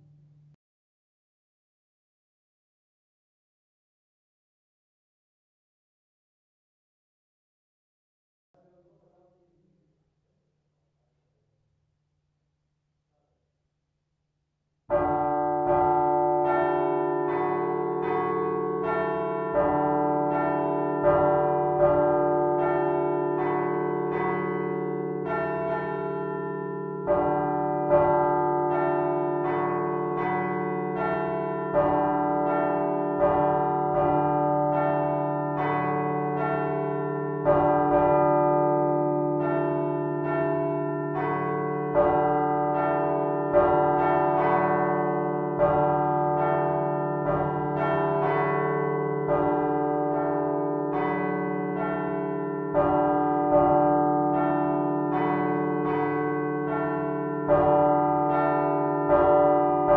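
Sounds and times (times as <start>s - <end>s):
large church bells ringing: 14.9s - 59.9s.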